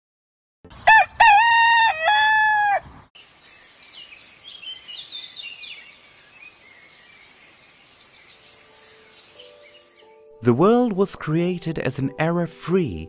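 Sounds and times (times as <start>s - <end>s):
rooster crowing: 0.8s - 2.9s
small birds chirping: 2.8s - 10.3s.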